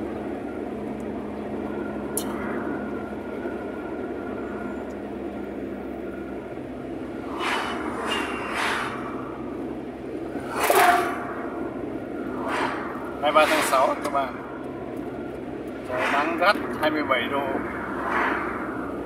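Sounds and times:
road and tyre noise in car: 0:00.0 - 0:19.0
passing vehicle whooshes: 0:06.8 - 0:19.0.

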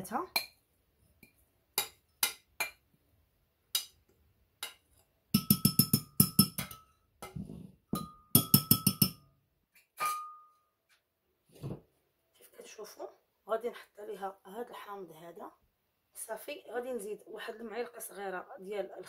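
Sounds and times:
spoon tapping glass: 0:05.4 - 0:07.4, 0:08.0 - 0:09.3, 0:10.0 - 0:10.5.

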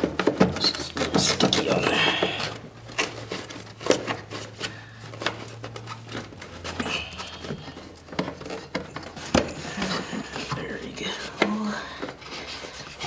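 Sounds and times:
filter frame scraping plastic: 0:00.0 - 0:13.0.

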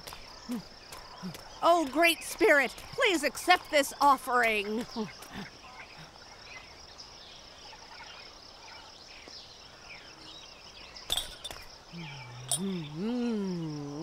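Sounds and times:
bird chirps: 0:00.0 - 0:13.8
insect chorus trilling: 0:00.0 - 0:14.0
low voice sound: 0:11.9 - 0:14.0.

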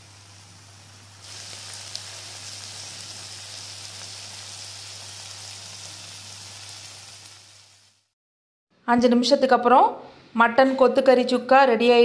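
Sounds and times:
meat sizzling in a pan: 0:00.0 - 0:08.2.

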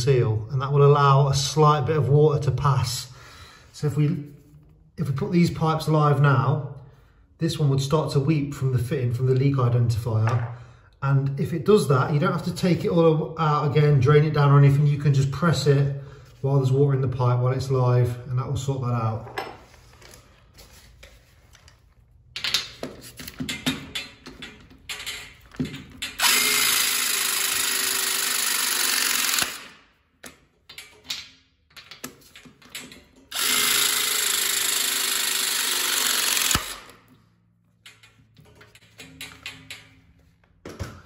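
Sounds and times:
pipe press tool motor: 0:26.2 - 0:29.8, 0:33.3 - 0:37.0.

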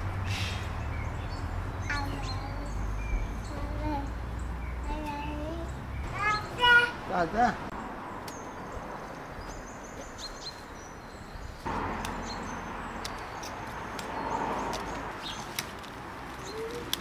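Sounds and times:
small birds chirping: 0:00.2 - 0:17.0
plants rustling: 0:13.0 - 0:17.0.

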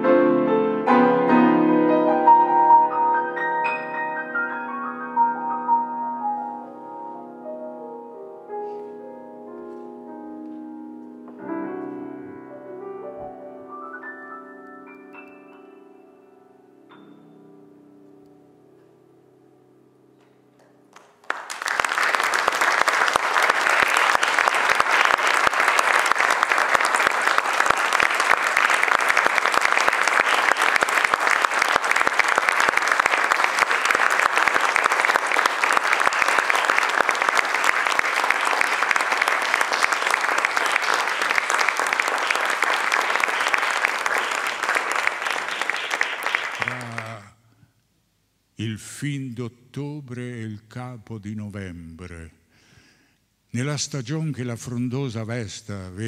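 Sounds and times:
grand piano notes: 0:00.0 - 0:21.3
audience applauding: 0:20.9 - 0:47.3.

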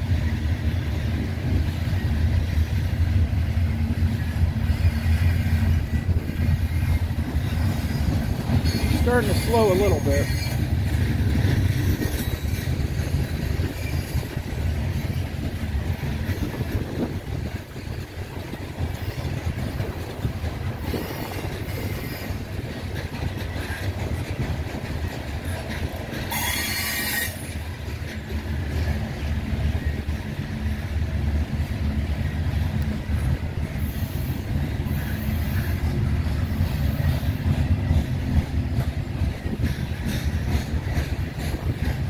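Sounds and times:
freight train rumbling past: 0:00.0 - 0:42.0
train wheels squealing: 0:04.1 - 0:20.0, 0:20.8 - 0:24.4, 0:25.0 - 0:29.0, 0:33.7 - 0:38.6.

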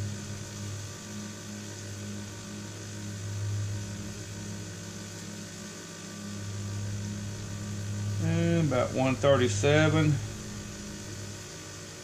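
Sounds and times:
exhaust fan whirring: 0:00.0 - 0:12.0.

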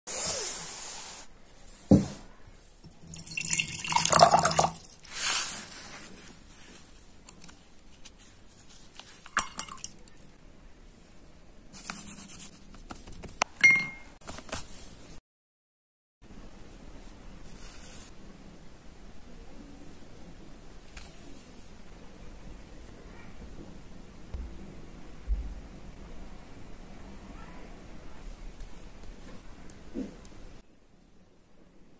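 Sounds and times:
water splashing in a jar: 0:02.9 - 0:05.0, 0:09.2 - 0:10.3.

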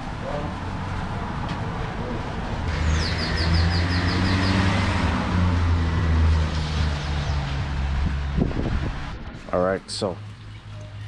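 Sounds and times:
bird chirping: 0:02.7 - 0:04.7.

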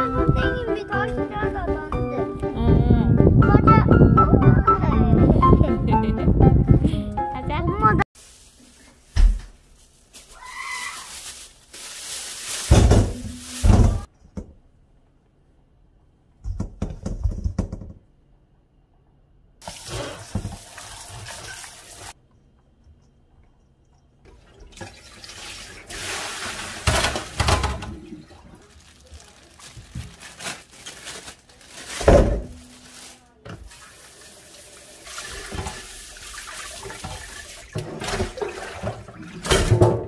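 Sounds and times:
tap water running into sink: 0:19.6 - 0:22.2, 0:24.2 - 0:28.0, 0:33.6 - 0:40.0
apples tumbling into metal colander: 0:25.8 - 0:30.7.

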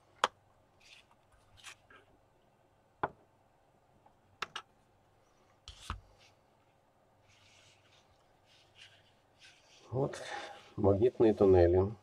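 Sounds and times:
soft rubbing: 0:05.2 - 0:11.9.

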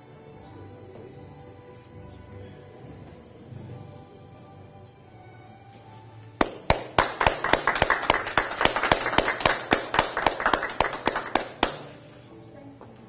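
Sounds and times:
faint music: 0:00.0 - 0:13.0
group hand clapping: 0:06.4 - 0:12.1.

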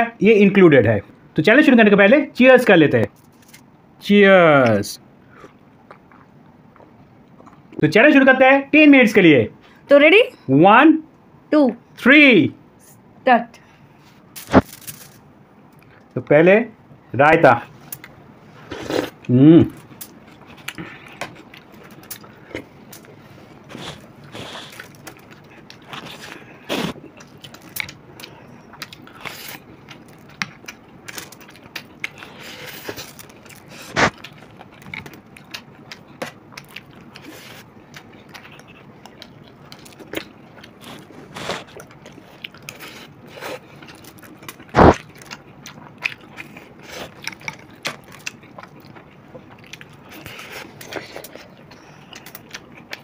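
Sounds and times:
chewing: 0:05.3 - 0:07.8, 0:18.7 - 0:53.0.

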